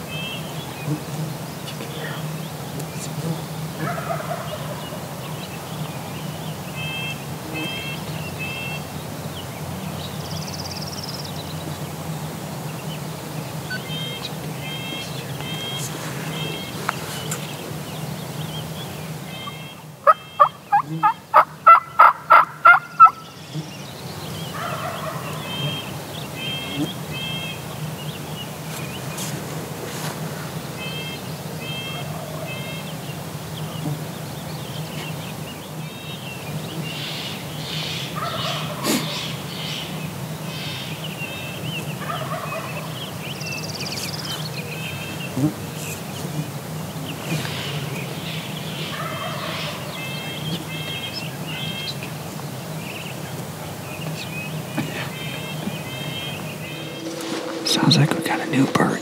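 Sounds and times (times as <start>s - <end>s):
small birds chirping: 0.0s - 59.0s
turkey yelping: 3.8s - 4.8s, 19.4s - 23.2s, 24.6s - 25.4s, 48.9s - 49.8s.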